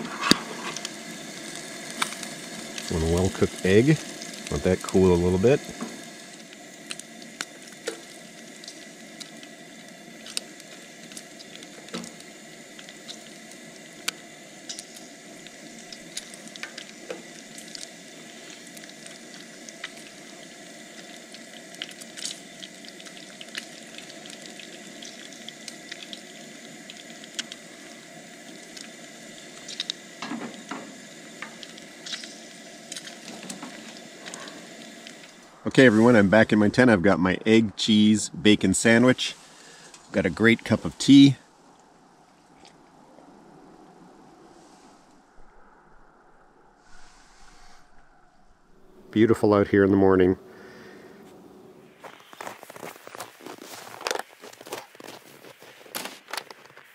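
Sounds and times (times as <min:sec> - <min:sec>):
bacon sizzling in a frying pan: 0:00.0 - 0:35.5.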